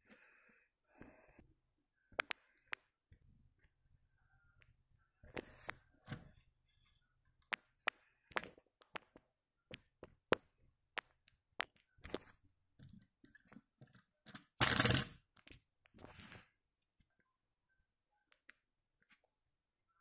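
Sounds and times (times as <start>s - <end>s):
toy car clicking on wooden table: 13.4s - 15.2s.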